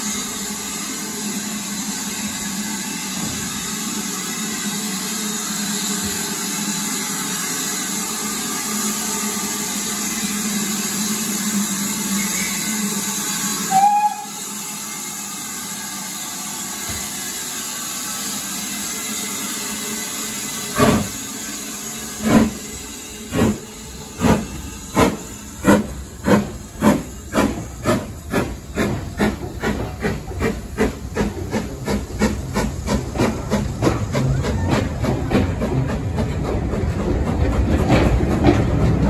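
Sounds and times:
steam hissing: 0:00.0 - 0:39.0
steam locomotive exhaust chuffs: 0:00.0 - 0:39.0
steam locomotive whistle: 0:12.0 - 0:16.9.

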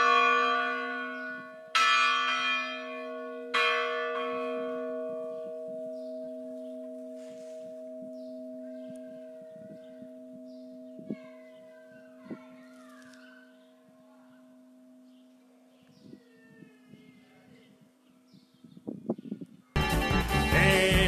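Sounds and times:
church bell ringing: 0:00.0 - 0:12.7, 0:13.4 - 0:15.7.

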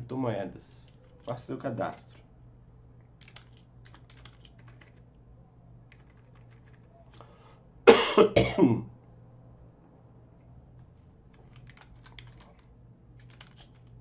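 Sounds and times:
computer keyboard keystrokes: 0:03.1 - 0:05.0, 0:05.9 - 0:07.3, 0:11.3 - 0:14.0
man coughing: 0:07.9 - 0:08.9.

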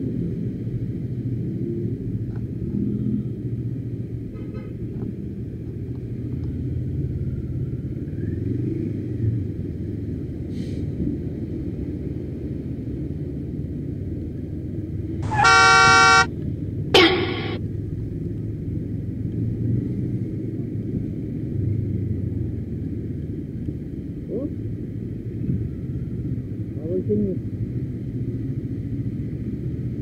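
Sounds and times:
road riding rumble: 0:00.2 - 0:30.0
vehicle horn: 0:15.2 - 0:16.3, 0:17.0 - 0:17.6.

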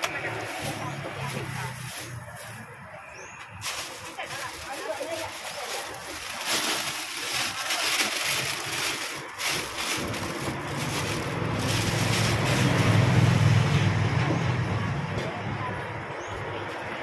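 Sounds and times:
plastic bag crinkling: 0:00.0 - 0:02.8, 0:03.6 - 0:13.3
vehicle engine rumble: 0:00.0 - 0:17.0.

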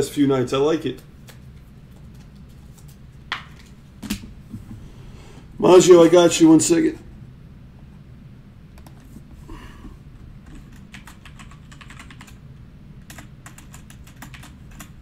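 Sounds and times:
keyboard typing: 0:10.4 - 0:12.4, 0:13.0 - 0:15.0.

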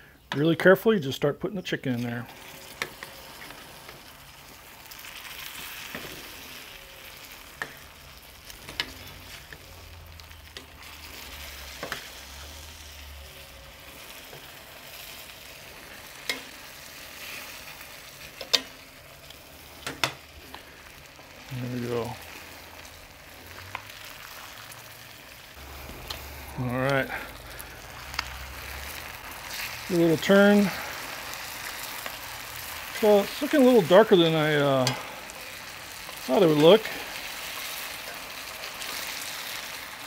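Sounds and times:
chicken sizzling in a skillet: 0:01.6 - 0:40.0
utensils clicking against skillet: 0:02.4 - 0:04.0, 0:07.6 - 0:07.9, 0:08.5 - 0:10.8, 0:11.4 - 0:12.2, 0:16.2 - 0:16.6, 0:18.2 - 0:20.6, 0:34.8 - 0:36.6.

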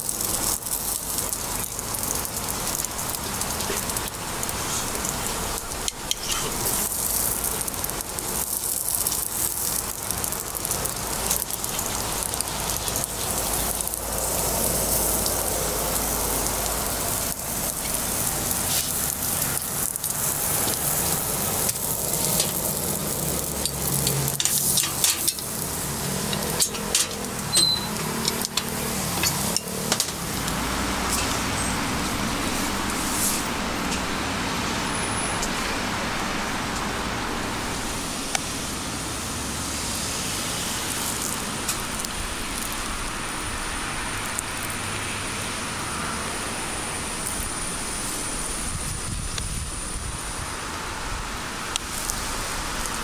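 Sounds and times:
batter sizzling in iron molds: 0:00.0 - 0:35.5, 0:37.9 - 0:50.5, 0:51.6 - 0:53.0
street traffic noise: 0:00.0 - 0:53.0
sharp clacks of iron molds: 0:26.3 - 0:30.2.

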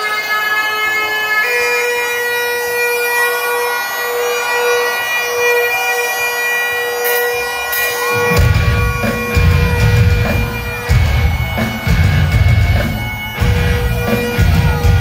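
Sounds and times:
bagpipe drone and melody: 0:00.0 - 0:15.0
rock band heavy low stabs: 0:08.0 - 0:15.0.

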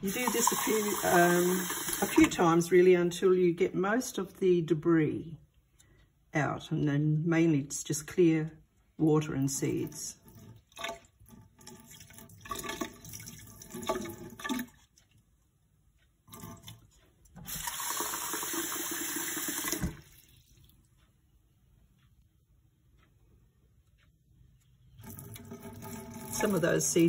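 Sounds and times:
water splashing into sink: 0:00.0 - 0:02.5, 0:09.7 - 0:14.9, 0:16.3 - 0:20.7, 0:25.0 - 0:27.0.

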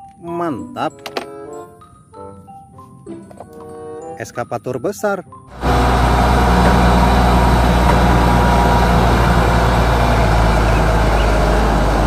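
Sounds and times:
diesel engine droning: 0:05.5 - 0:12.0.

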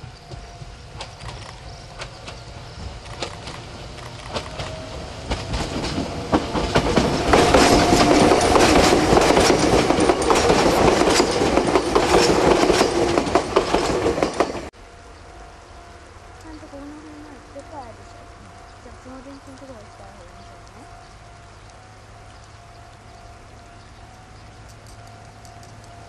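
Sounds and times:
train wheels clattering on rails: 0:00.0 - 0:14.7, 0:16.4 - 0:21.2.

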